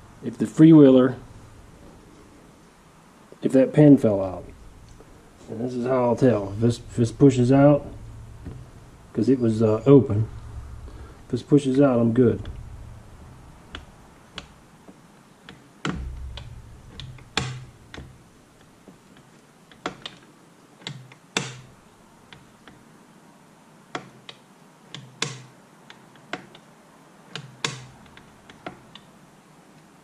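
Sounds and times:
light clicks and taps of parts: 13.7s - 21.7s, 23.9s - 26.7s.

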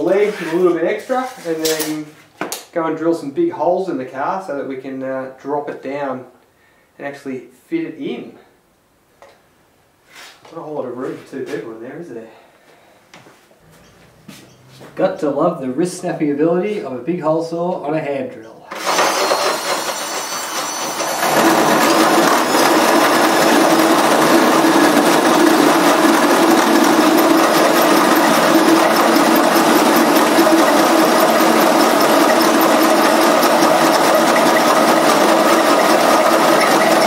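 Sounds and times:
drill cutting through metal: 18.7s - 37.0s.

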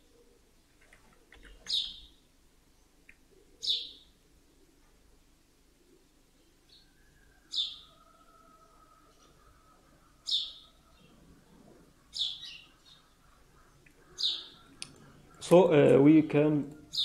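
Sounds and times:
bird chirping: 1.4s - 4.2s, 6.3s - 17.0s.

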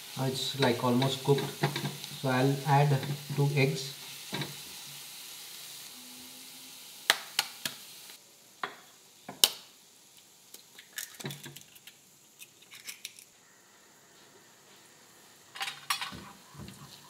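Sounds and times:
food sizzling in a frying pan: 0.0s - 12.2s.

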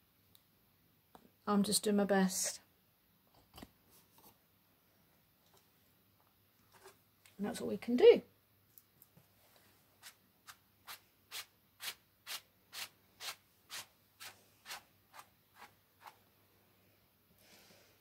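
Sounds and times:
paintbrush scrubbing canvas: 10.0s - 16.2s.

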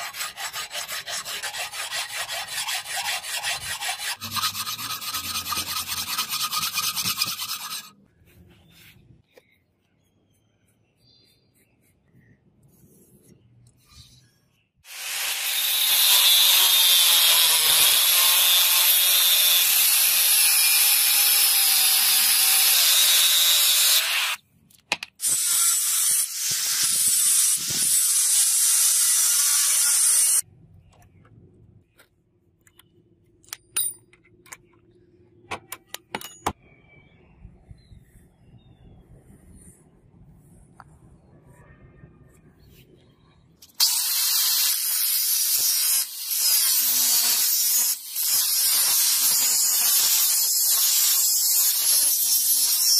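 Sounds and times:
angle grinder cutting steel: 0.0s - 8.0s, 14.9s - 24.4s, 25.2s - 30.4s, 43.7s - 52.9s.

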